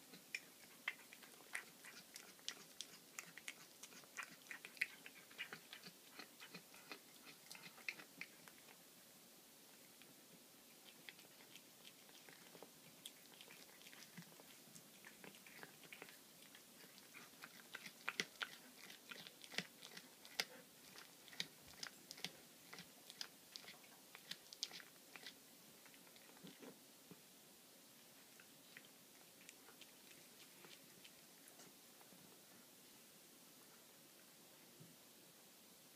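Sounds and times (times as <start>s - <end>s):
cat crunching bones: 0.1s - 8.8s, 10.8s - 26.8s.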